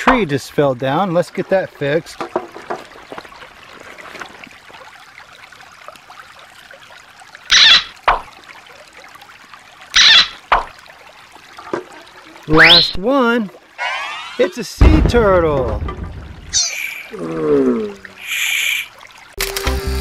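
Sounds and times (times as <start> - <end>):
water trickling over rocks: 0.0 - 19.6.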